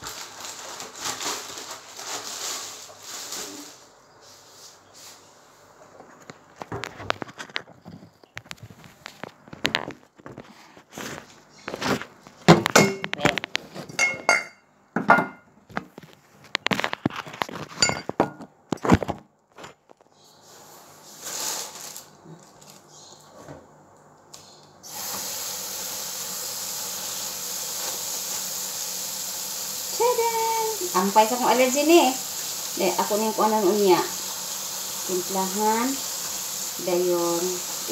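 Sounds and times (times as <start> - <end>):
prawns handled in plastic bag: 0.0 - 5.2, 20.5 - 23.0
tap water running: 24.8 - 37.9.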